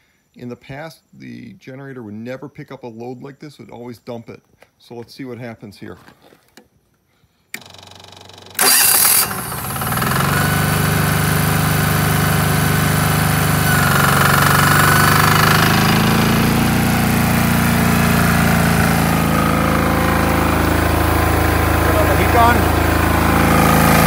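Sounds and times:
diesel generator engine running: 0:07.6 - 0:24.0.

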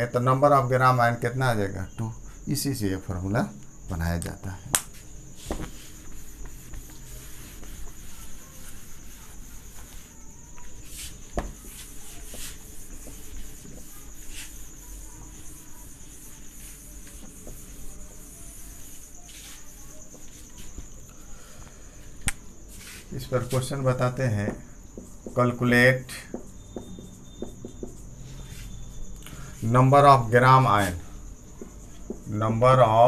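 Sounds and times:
cloth rubbing whiteboard: 0:04.9 - 0:20.9, 0:22.7 - 0:24.2, 0:25.0 - 0:29.0.

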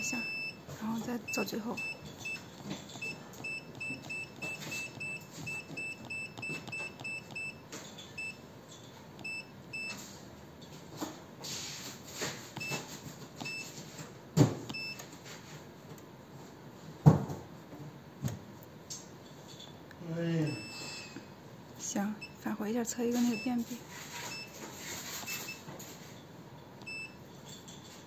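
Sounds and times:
short electronic key beeps: 0:01.3 - 0:07.6, 0:14.7 - 0:15.0, 0:26.8 - 0:27.2.

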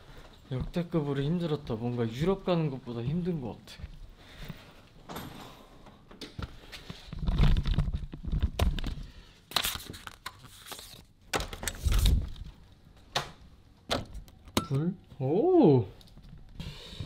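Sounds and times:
paper envelope rustling: 0:09.5 - 0:12.4.

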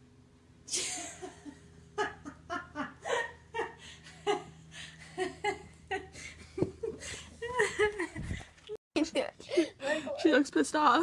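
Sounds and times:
person laughing: 0:00.7 - 0:08.5.

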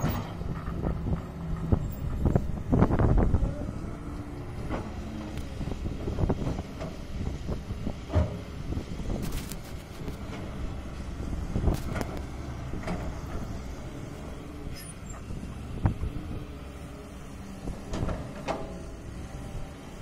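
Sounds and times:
excavator diesel engine drone: 0:00.0 - 0:20.0.

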